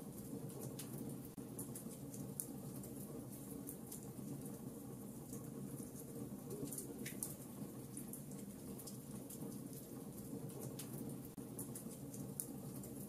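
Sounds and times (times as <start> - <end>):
logs crackling and popping: 5.2 - 13.0.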